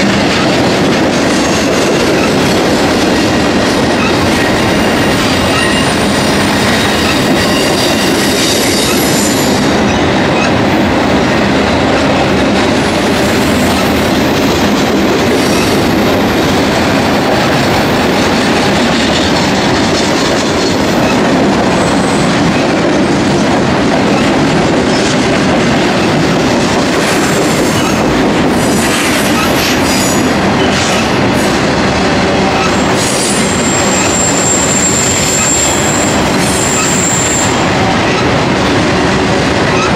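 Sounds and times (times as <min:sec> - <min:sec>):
train wheels rumbling on rail: 0:00.0 - 0:39.9
high wheel squeal: 0:04.9 - 0:06.0, 0:06.6 - 0:09.6, 0:32.5 - 0:37.6.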